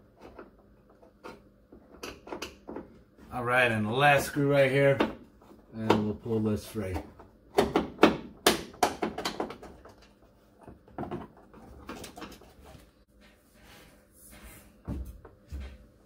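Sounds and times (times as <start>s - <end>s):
sharp knocks and rattles: 6.8s - 12.8s.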